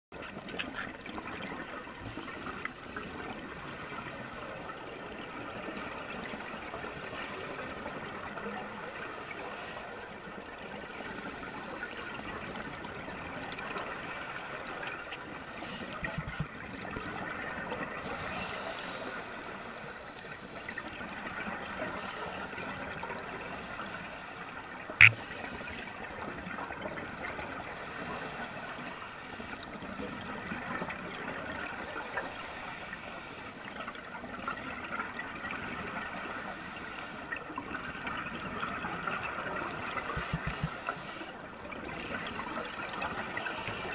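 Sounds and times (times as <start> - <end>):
diver inhaling through regulator: 3.0 - 4.8, 7.0 - 10.3, 13.6 - 16.2, 18.2 - 20.2, 21.7 - 26.0, 27.6 - 29.6, 36.1 - 37.3, 39.9 - 41.3.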